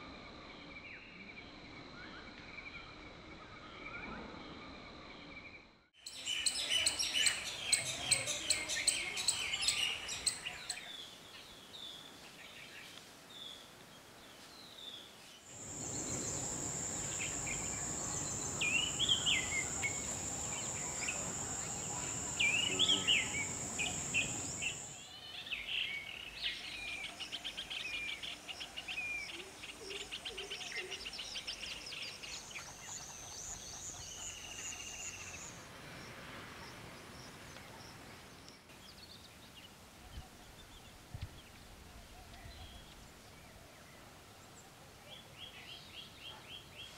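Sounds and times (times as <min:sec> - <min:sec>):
birds chirping: 0:15.5 - 0:25.0
wide hiss: 0:15.5 - 0:25.0
high-pitched insect drone: 0:15.6 - 0:24.9.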